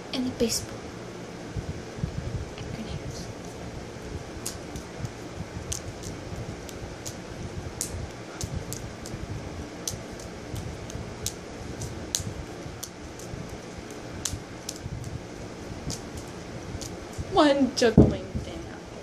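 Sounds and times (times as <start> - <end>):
fan noise: 0.0 - 19.0
juggling balls slapping hands: 4.4 - 7.2, 7.8 - 9.2, 9.8 - 15.2.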